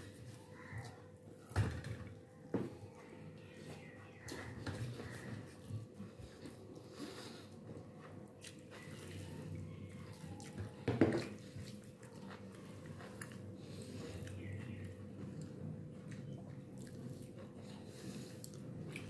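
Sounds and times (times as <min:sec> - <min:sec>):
faint steady hum: 0:00.0 - 0:19.0
fingers squishing wet food: 0:07.7 - 0:19.0.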